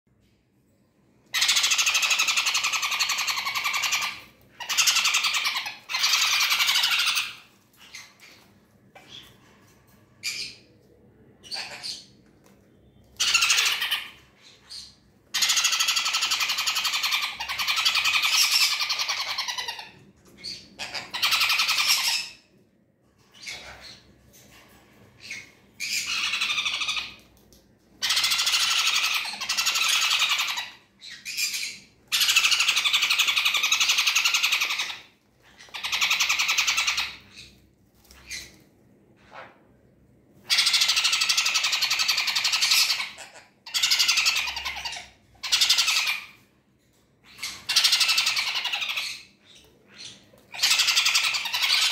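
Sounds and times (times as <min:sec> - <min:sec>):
chicks rasping begging calls: 0:01.4 - 0:07.5, 0:20.6 - 0:22.2, 0:40.5 - 0:46.3.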